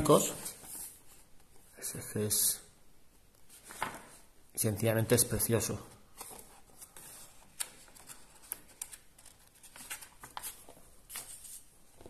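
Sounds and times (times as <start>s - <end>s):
paper pages rustling: 3.5s - 4.2s, 6.1s - 12.0s.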